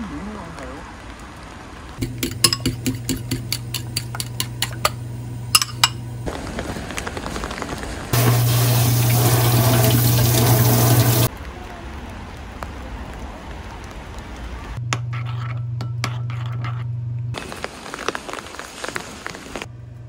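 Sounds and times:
rain falling: 0.0s - 2.2s, 6.2s - 14.8s, 17.4s - 19.7s
spoon clicking against bowl: 2.0s - 5.0s, 5.6s - 6.0s.

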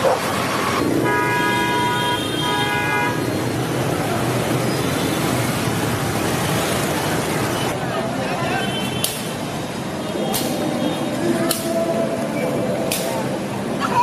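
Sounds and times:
street traffic noise: 0.0s - 14.0s
vehicle horn honking: 1.0s - 3.2s.

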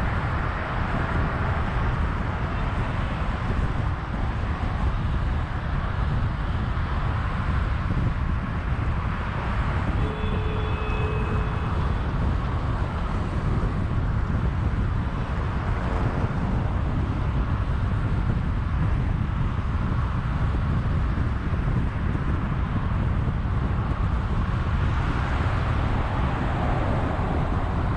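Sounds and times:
car road and wind noise: 0.0s - 27.9s
faint high tone: 10.0s - 12.0s.

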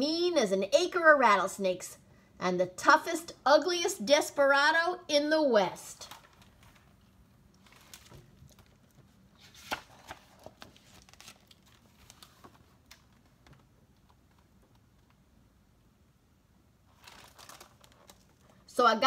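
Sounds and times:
book pages rustling: 6.1s - 15.2s, 16.9s - 18.6s.

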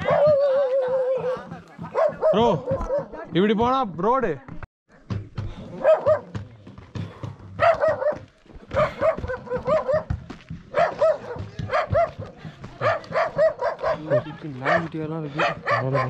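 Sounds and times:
dog barking: 0.0s - 3.3s, 5.7s - 6.4s, 7.6s - 16.0s.

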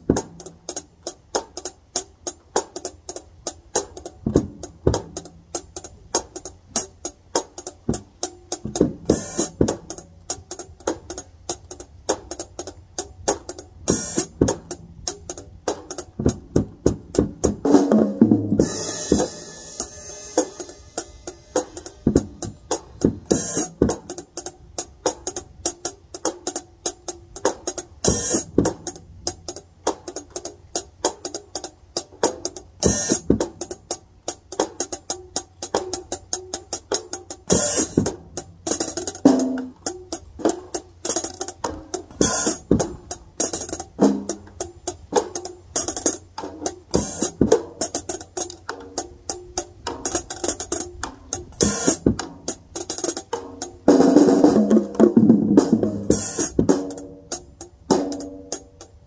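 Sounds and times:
drum kit groove: 0.0s - 59.0s
cymbal accent: 17.7s - 23.9s.

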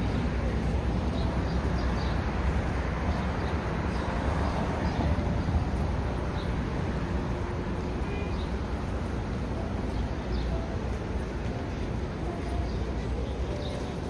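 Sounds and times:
low rumble of traffic: 0.0s - 14.0s.

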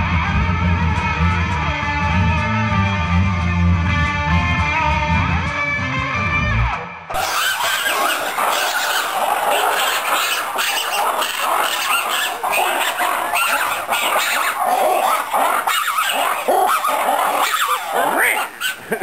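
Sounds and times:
lemurs calling: 7.1s - 19.0s.

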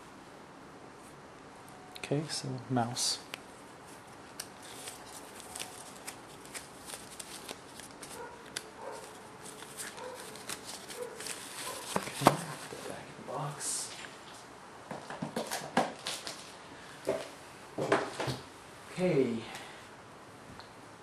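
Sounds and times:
hands handling cardboard packaging: 3.6s - 13.0s, 14.9s - 18.4s.

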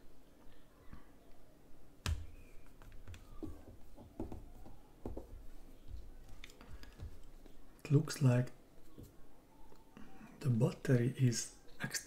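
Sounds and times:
soft knocks and taps: 2.1s - 7.6s.

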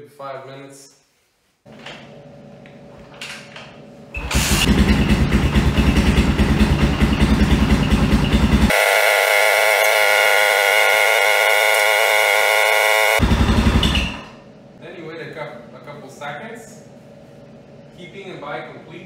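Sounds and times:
motorcycle engine idling: 4.6s - 8.7s, 13.2s - 14.0s
steady higher-pitched drone: 7.6s - 14.2s.

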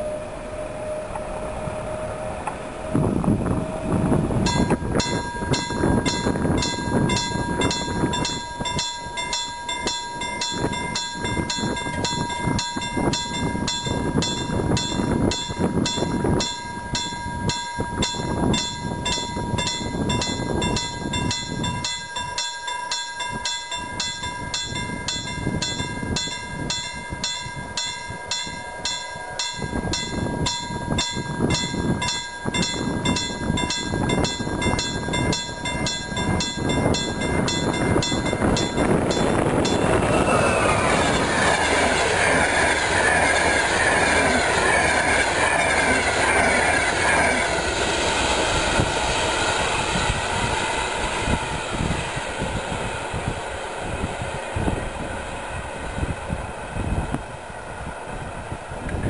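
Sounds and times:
low train rumble: 0.0s - 59.0s
level crossing bell ringing: 4.5s - 40.0s.

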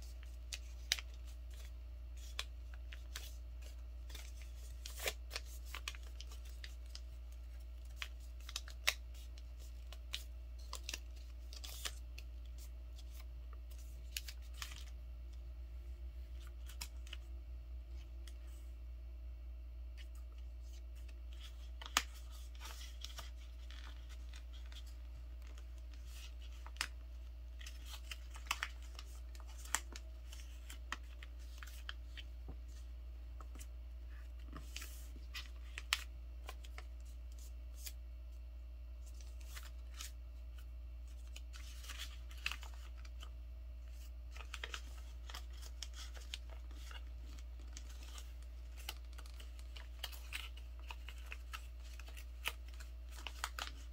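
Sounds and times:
paper crackling: 0.0s - 15.0s, 20.0s - 32.8s, 39.0s - 53.9s.

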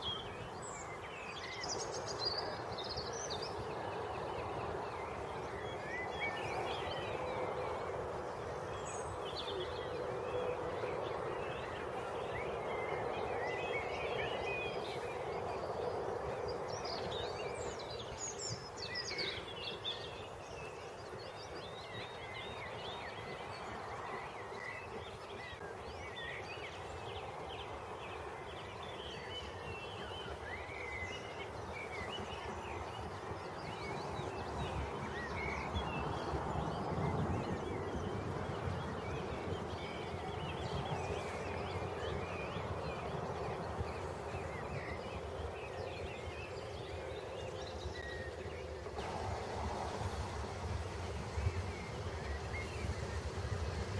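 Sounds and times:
songbirds chirping: 0.0s - 53.9s
steam locomotive rumbling: 0.0s - 53.9s.

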